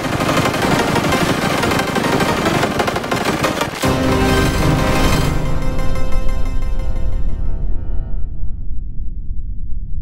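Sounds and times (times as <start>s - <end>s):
piano music with flanger: 0.7s - 8.4s
rough low rumble: 4.0s - 10.0s.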